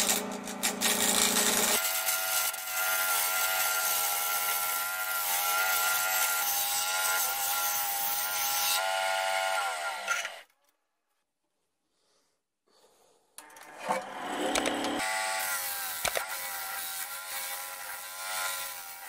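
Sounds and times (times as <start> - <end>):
lathe tool scraping wood: 0.0 - 10.4.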